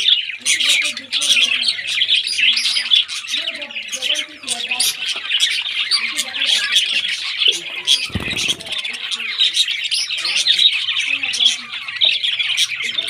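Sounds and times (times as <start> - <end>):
budgerigars chirping: 0.0 - 13.0.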